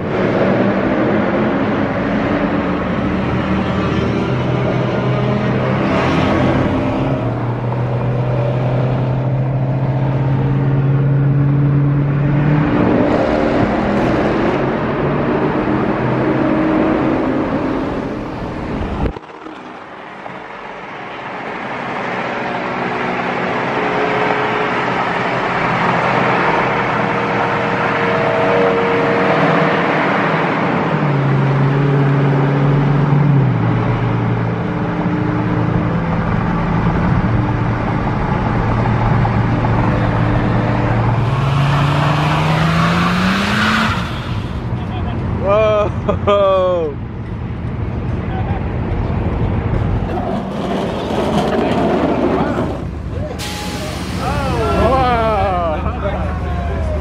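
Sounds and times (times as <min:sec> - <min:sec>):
car engine: 0:00.0 - 0:57.0
road noise: 0:00.0 - 0:57.0.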